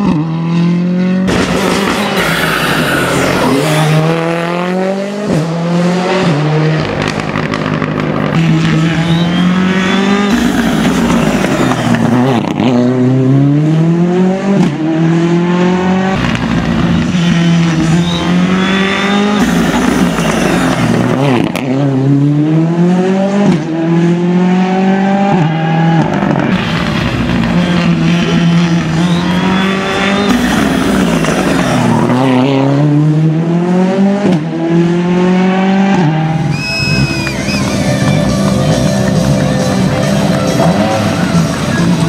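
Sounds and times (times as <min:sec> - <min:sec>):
rally car engine accelerating: 0:00.0 - 0:42.0
brief high squeal: 0:36.5 - 0:38.3.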